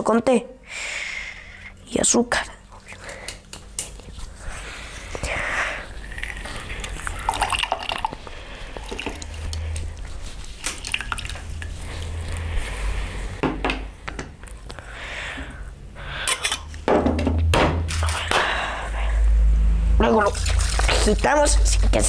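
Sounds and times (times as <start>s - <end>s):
juice dripping into a glass: 6.0s - 10.0s, 10.7s - 12.5s
sharp knock: 16.9s - 17.9s.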